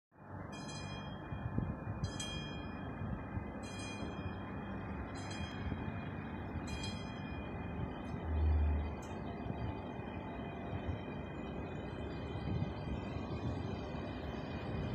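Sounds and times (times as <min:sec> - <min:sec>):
train rumbling with high whine: 0:00.2 - 0:14.9
chime-like ringing tone: 0:00.3 - 0:09.5.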